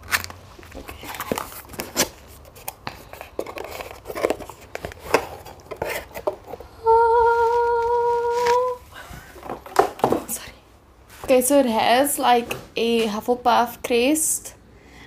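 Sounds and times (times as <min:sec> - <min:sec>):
cardboard box rustling and scraping: 0:00.7 - 0:06.7.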